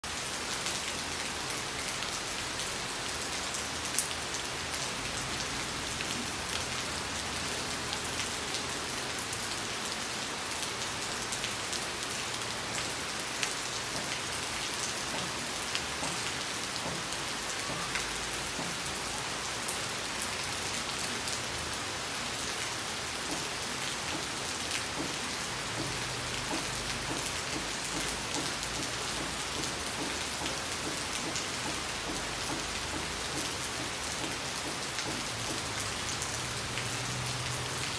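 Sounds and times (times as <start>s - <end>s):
rain on waterlogged ground: 0.0s - 37.9s.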